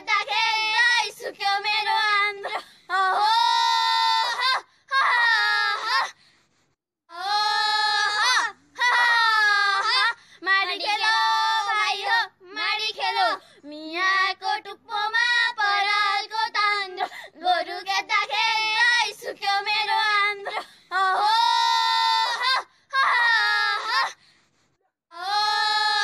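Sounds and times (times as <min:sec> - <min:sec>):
young woman singing: 0:00.0 - 0:04.5, 0:07.1 - 0:22.4.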